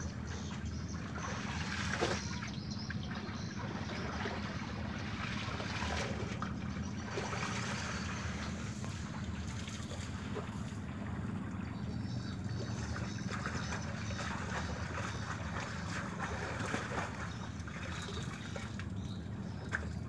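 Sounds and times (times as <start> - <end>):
river water lapping at bank: 0.0 - 20.0
steady low hum: 0.0 - 20.0.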